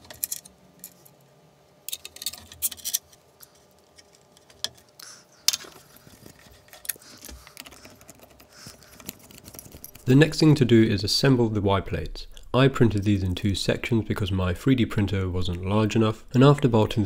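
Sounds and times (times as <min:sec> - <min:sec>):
hands handling parts and tools: 0:00.0 - 0:01.2, 0:01.9 - 0:10.1.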